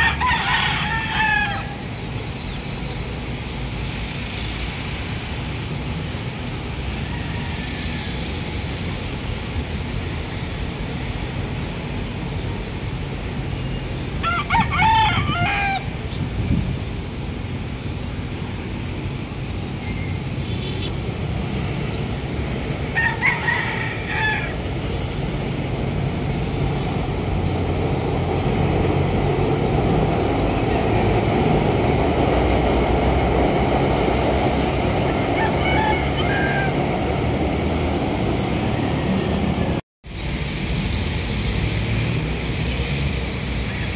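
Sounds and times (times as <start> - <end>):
rooster crowing: 0.0 - 1.8, 6.9 - 8.4, 14.2 - 16.0, 22.9 - 25.0, 34.6 - 37.3
low rumble of traffic: 0.0 - 43.9.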